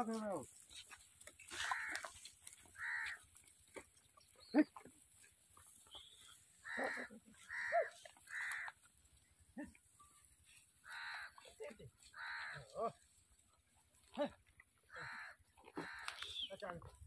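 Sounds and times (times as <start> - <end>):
harsh animal calls: 1.5 - 3.4, 6.3 - 8.9, 10.8 - 13.0, 14.4 - 16.4.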